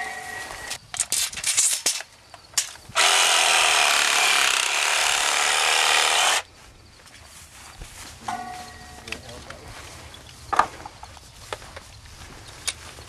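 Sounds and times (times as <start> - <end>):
saw cutting plastic pipe: 3.0 - 6.4.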